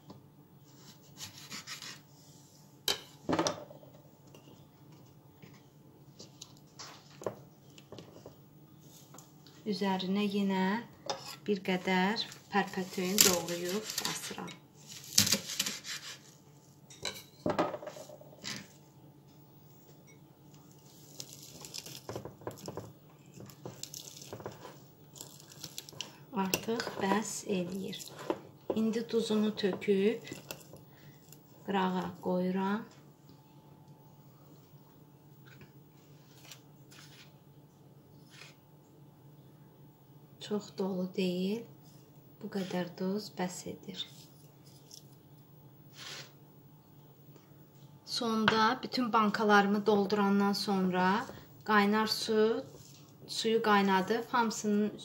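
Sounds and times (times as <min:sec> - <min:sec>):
knife scraping strokes: 0:00.7 - 0:02.1, 0:12.8 - 0:16.4, 0:45.9 - 0:46.3
knife cutting on wooden board: 0:01.1 - 0:02.0
stems rustling and crackling: 0:12.2 - 0:16.0, 0:20.6 - 0:28.4.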